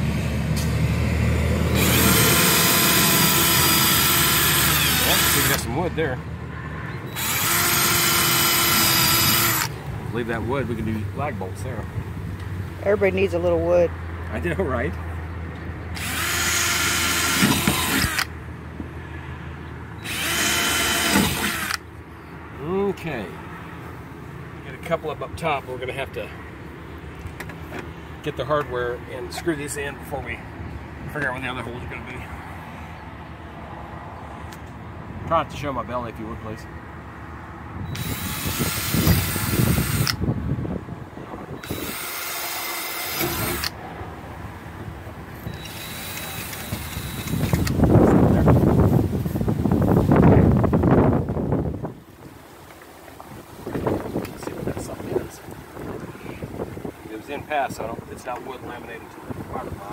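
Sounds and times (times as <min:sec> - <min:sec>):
cordless drill boring into fiberglass: 0:01.8 - 0:05.7, 0:07.1 - 0:09.7, 0:16.0 - 0:18.3, 0:20.0 - 0:21.8, 0:37.9 - 0:40.2, 0:41.6 - 0:43.7, 0:45.5 - 0:47.8.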